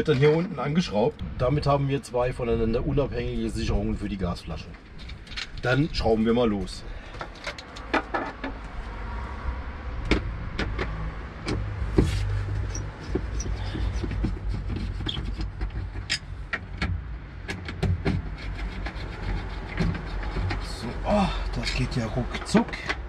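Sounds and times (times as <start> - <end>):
low steady rumble: 0.0 - 7.2
tool clicks and knocks: 10.1 - 18.9.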